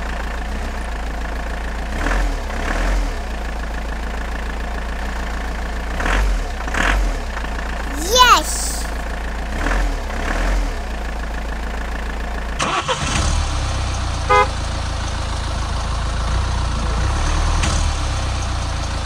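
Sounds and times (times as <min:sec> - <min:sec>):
truck horn beep: 0:14.3 - 0:14.5.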